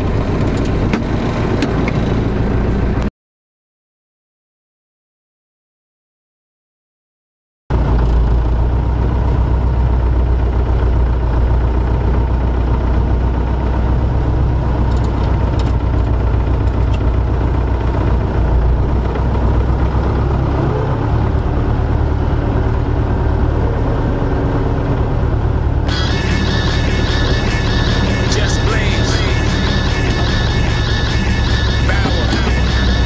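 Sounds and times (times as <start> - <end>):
tractor diesel engine running: 7.8 - 20.0, 25.3 - 33.0.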